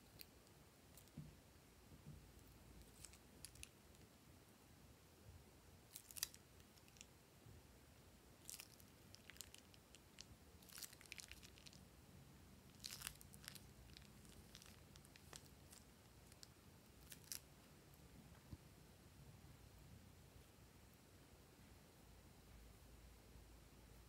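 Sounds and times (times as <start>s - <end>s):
plastic bag crinkling: 8.4s - 11.8s, 12.7s - 17.4s
slime squelching: 8.4s - 11.8s, 12.7s - 17.5s.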